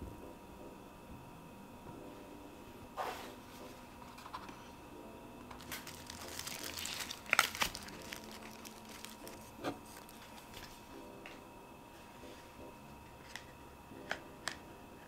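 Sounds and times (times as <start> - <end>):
plastic packaging crinkling: 5.5 - 10.8.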